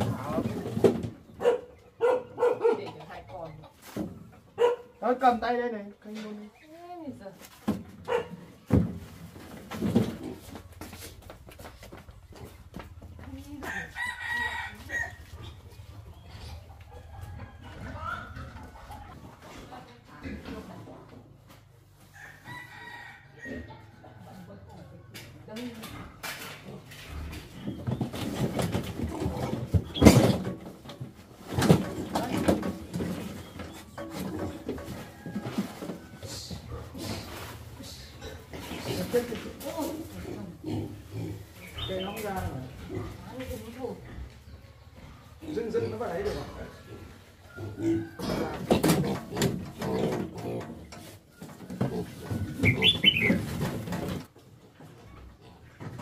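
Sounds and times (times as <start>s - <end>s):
piglets grunting and squealing: 36.2s - 42.0s, 44.0s - 53.6s
piglets squealing and grunting: 46.6s - 50.9s, 51.8s - 53.6s.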